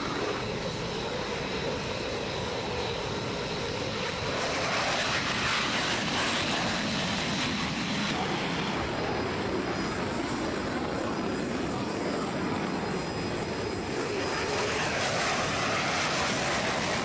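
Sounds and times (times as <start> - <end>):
jet engines rushing and whining: 0.0 - 17.0.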